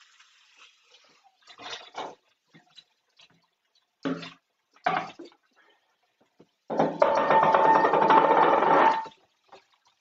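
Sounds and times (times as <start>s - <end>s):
water splashing in sink: 0.0s - 10.0s
plastic bowl clattering in steel sink: 6.7s - 9.2s.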